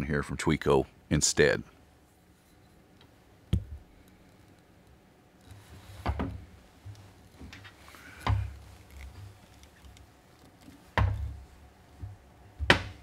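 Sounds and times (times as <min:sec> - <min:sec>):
rustling: 0:05.4 - 0:12.2
handling knocks: 0:10.8 - 0:13.0.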